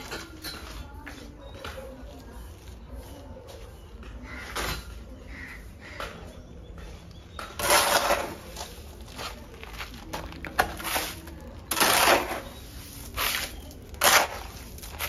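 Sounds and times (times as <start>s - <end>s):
concrete mix scraping: 6.9s - 15.0s.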